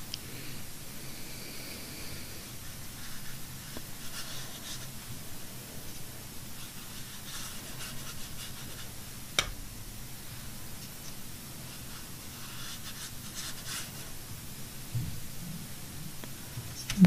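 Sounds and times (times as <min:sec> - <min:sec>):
paintbrush scratching on paper: 0:02.6 - 0:05.1, 0:06.6 - 0:08.9, 0:11.6 - 0:14.2.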